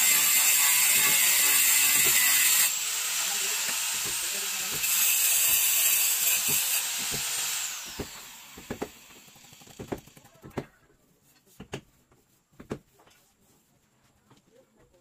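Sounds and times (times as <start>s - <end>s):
power tool whirring down: 0.0s - 10.2s.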